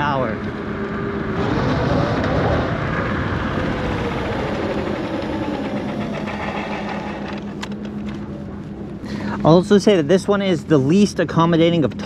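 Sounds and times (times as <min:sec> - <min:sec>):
electric scooter motor whine: 0:00.0 - 0:09.0
rushing noise: 0:00.0 - 0:09.1
low hum: 0:00.0 - 0:11.7.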